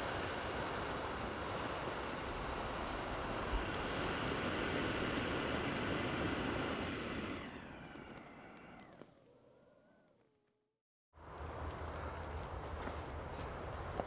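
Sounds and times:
steady rushing noise: 0.0s - 8.9s.

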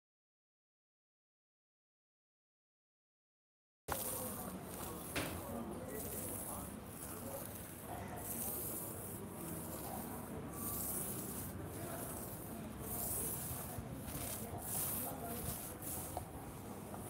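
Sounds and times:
paint roller hissing on rough wall: 3.9s - 17.0s.

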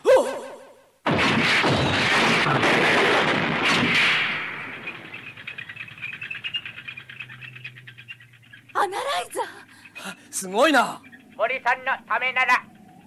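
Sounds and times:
loud crashing rumble: 1.1s - 5.8s.

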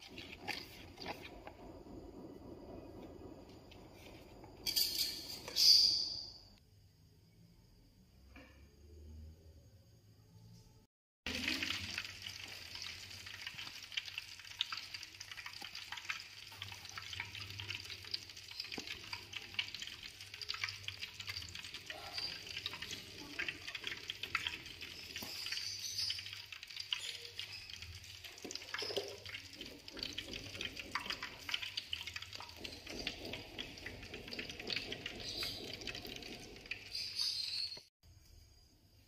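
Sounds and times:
oil sizzling in a wok: 11.3s - 37.9s.

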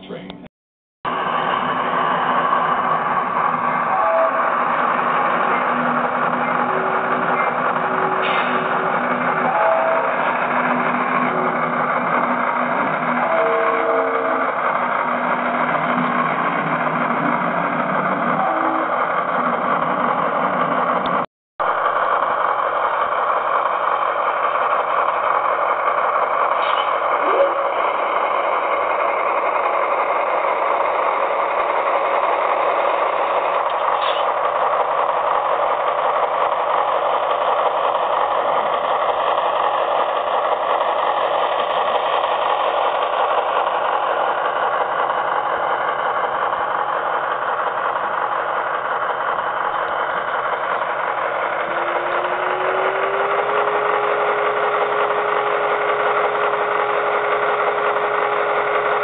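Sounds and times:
simulated diesel engine from speaker: 0.0s - 59.0s
rising tone: 51.2s - 59.0s.

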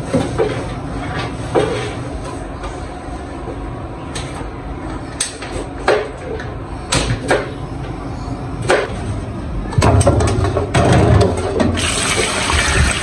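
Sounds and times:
clattering in a steel sink: 9.8s - 12.2s
water running into sink: 11.8s - 13.0s.

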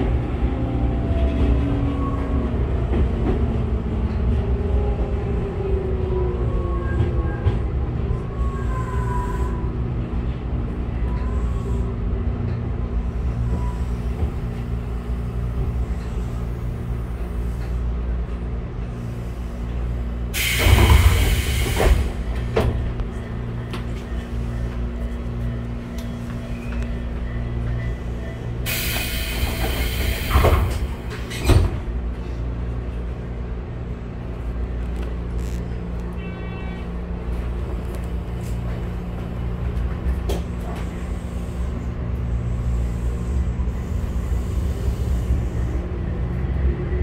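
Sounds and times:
train low rumble: 0.0s - 47.0s.

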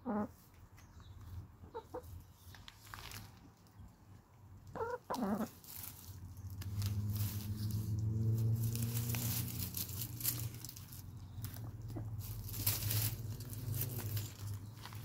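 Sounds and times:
hens clucking: 0.0s - 0.6s, 1.2s - 2.4s, 4.6s - 6.2s, 10.2s - 14.1s.

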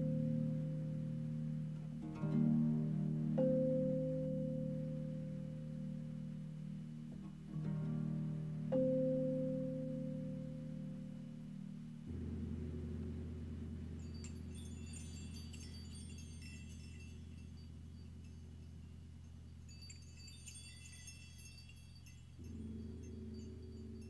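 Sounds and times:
ambient music low held chords: 0.0s - 20.0s, 22.4s - 24.0s
high tinkling chime-like notes: 13.8s - 24.0s.

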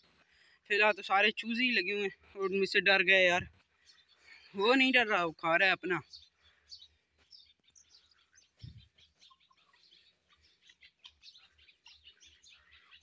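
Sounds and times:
faint high bird chirps: 0.7s - 13.0s.

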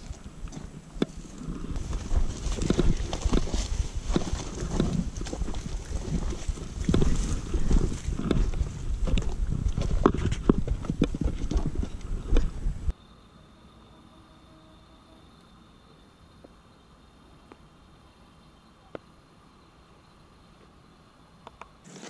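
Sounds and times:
footsteps on rocky trail: 0.0s - 12.9s.

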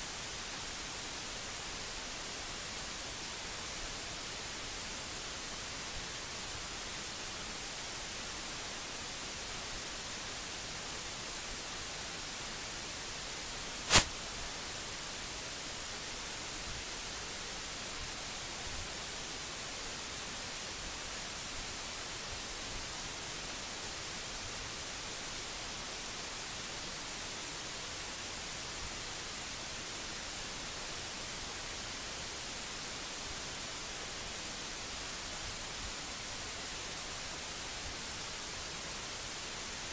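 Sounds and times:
microphone hiss: 0.0s - 39.9s
sharp click: 13.9s - 14.1s.

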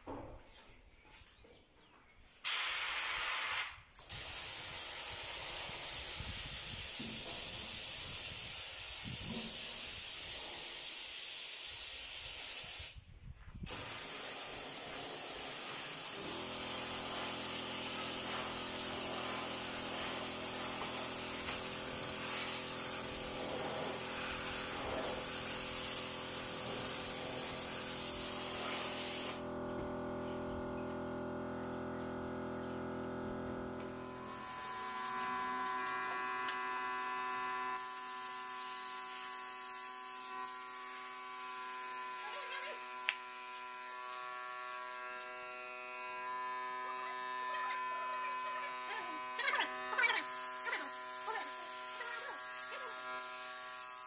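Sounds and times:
spray gun hissing: 2.4s - 13.0s, 13.6s - 29.5s, 31.0s - 54.0s
steady hum: 29.4s - 53.9s.

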